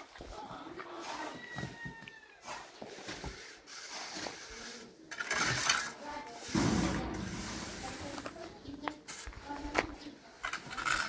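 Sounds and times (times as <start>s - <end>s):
trowels scraping mortar: 3.1s - 6.5s
heavy knock: 6.6s - 8.7s.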